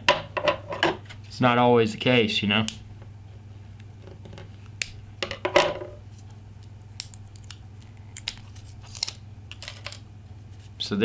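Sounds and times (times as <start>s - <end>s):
steady low hum: 0.0s - 11.0s
plastic wrap clicks and crinkles: 6.9s - 10.0s.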